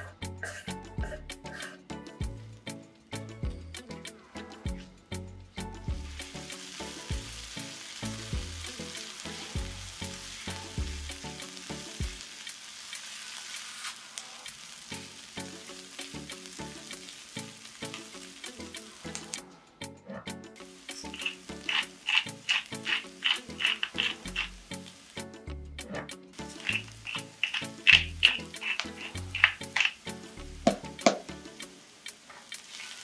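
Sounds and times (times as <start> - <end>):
background music: 0.0 - 12.9, 14.5 - 33.0
onion sizzling in a frying pan: 5.9 - 19.4, 20.6 - 25.4, 26.3 - 33.0
spatula stirring: 20.9 - 24.6, 26.4 - 30.1.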